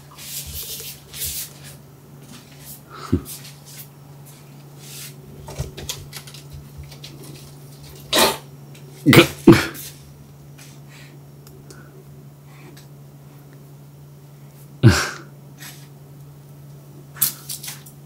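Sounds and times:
cat hissing and spitting: 8.1s - 8.4s.

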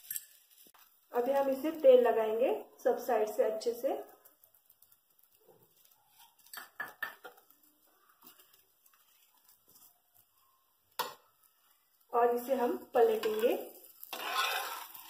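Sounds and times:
metal clink: 0.0s - 0.4s
spatula scraping on griddle: 13.0s - 15.0s.

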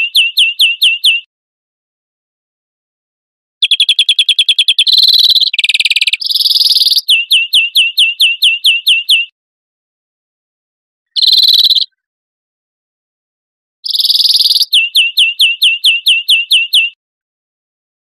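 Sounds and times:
finch song trills: 0.0s - 1.3s, 3.6s - 9.3s, 11.2s - 12.0s, 13.9s - 17.0s
sharp down-slurred bird notes: 0.0s - 1.3s, 3.6s - 9.3s, 11.2s - 11.9s, 13.9s - 17.0s.

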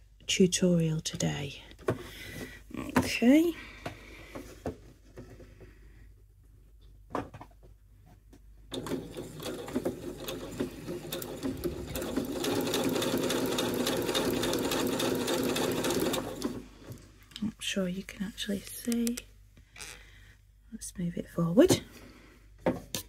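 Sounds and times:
sewing machine stitching: 8.7s - 16.7s.

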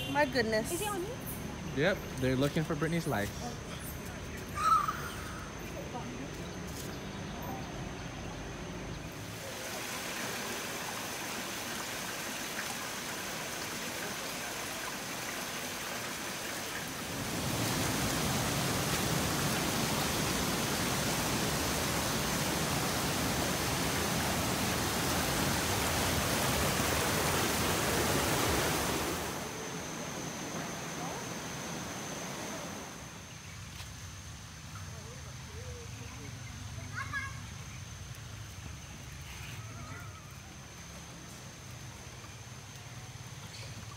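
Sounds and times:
stream rushing over stones: 9.1s - 29.6s.

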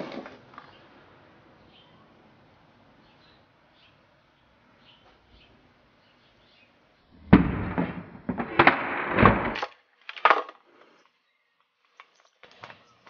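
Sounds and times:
calculator cracking and popping: 7.3s - 11.0s.

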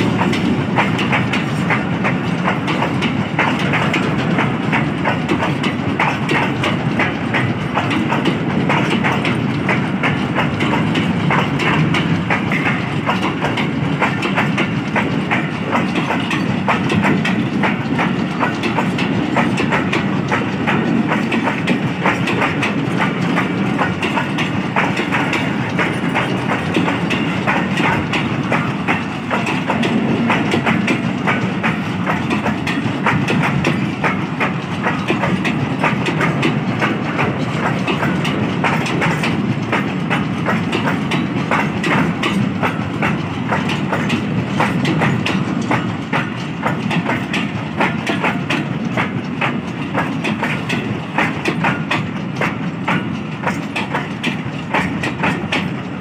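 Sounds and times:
clicks and clanks of couplings: 0.0s - 56.0s
train wheels rumbling on rails: 0.0s - 56.0s.

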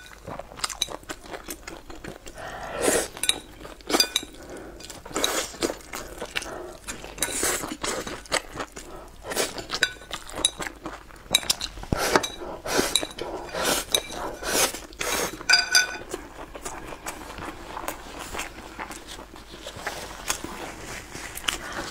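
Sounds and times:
mouth sounds of eating: 0.0s - 21.9s
chopsticks clinking on porcelain bowl: 3.2s - 5.7s, 9.5s - 10.7s, 11.3s - 14.5s, 15.4s - 16.2s.

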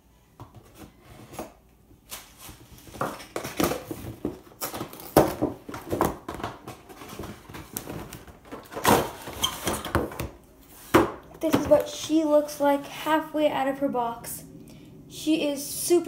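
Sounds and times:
packaging crinkling and rustling: 2.0s - 10.2s.

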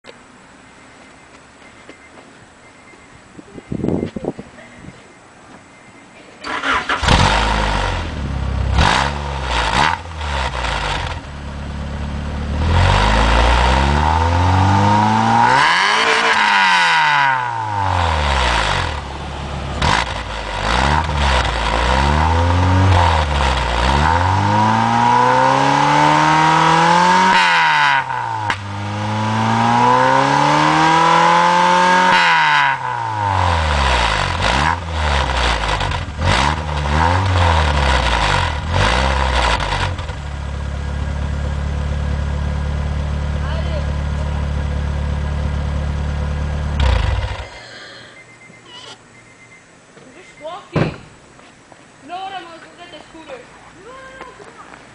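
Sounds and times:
car engine revving: 6.4s - 47.6s.

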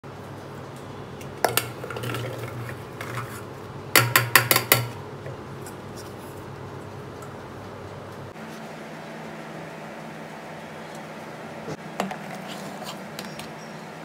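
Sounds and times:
steel bowl clanking on pot rim: 1.4s - 3.4s.

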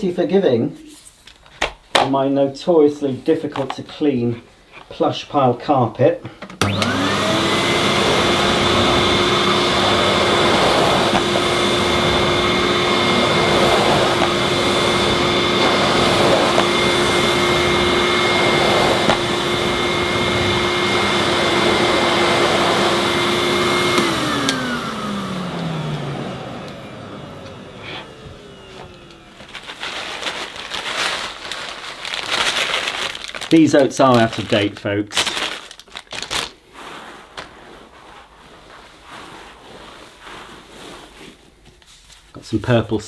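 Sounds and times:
vacuum cleaner whine: 6.6s - 31.6s.

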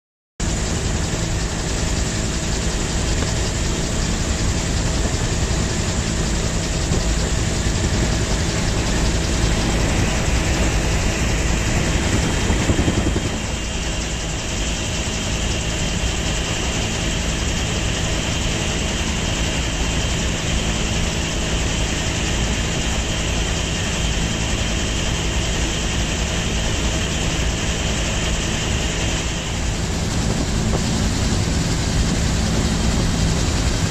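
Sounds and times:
vehicle engine running: 0.4s - 14.4s, 29.3s - 33.9s
road and wind noise: 2.4s - 14.2s, 29.0s - 33.9s.

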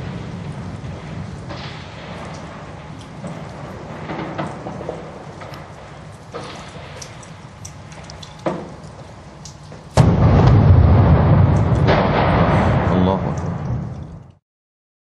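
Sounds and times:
heavy explosion: 0.0s - 7.2s, 10.0s - 14.4s
distant gunfire cracks: 10.0s - 13.8s.

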